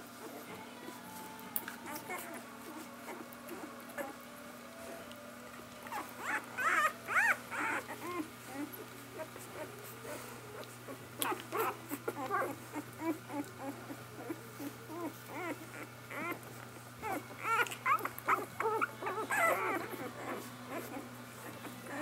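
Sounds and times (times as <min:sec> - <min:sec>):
puppies squeaking and whimpering: 0:05.8 - 0:22.0.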